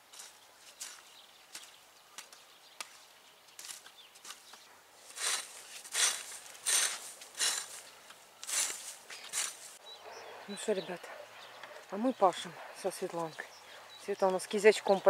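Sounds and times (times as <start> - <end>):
hoe chopping and scraping soil: 0.0 - 9.8.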